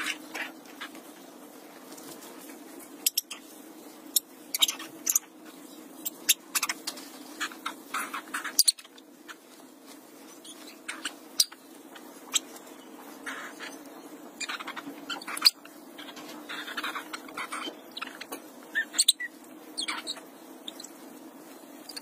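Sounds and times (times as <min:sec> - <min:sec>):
puppies squeaking: 0:14.4 - 0:20.9.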